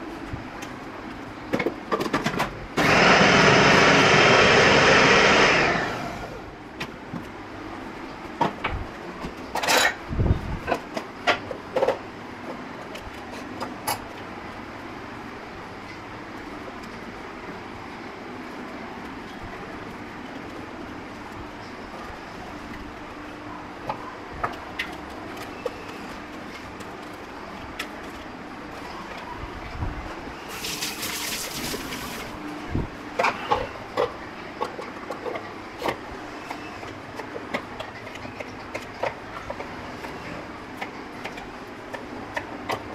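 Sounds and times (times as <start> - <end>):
steady background noise: 0.0 - 42.9
tap water running into cup: 30.5 - 32.3.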